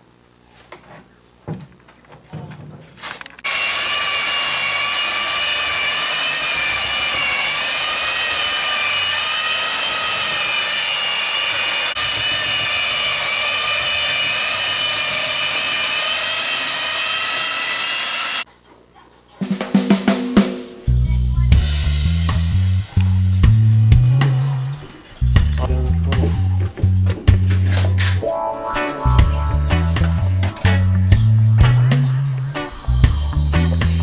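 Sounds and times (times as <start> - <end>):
electric belt sander whining: 3.4 - 18.5.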